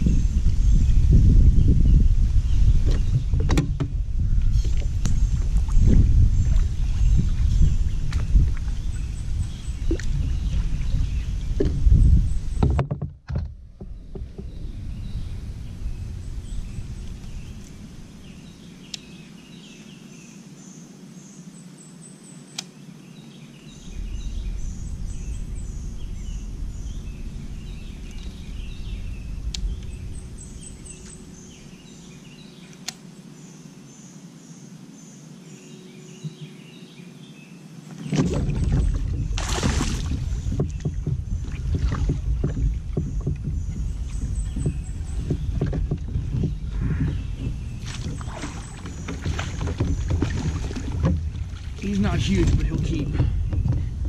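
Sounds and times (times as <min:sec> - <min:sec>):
wind rumble on microphone: 0:00.0 - 0:19.8, 0:23.6 - 0:32.9, 0:37.9 - 0:54.0
songbirds chirping: 0:00.0 - 0:54.0.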